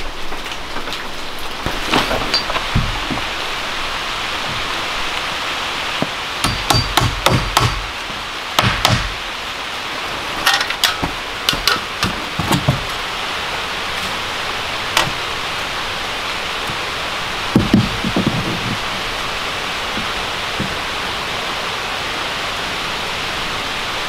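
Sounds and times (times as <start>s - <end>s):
steady hiss: 0.0s - 24.0s
hand tool knocks and strikes: 6.4s - 7.8s, 10.5s - 12.8s.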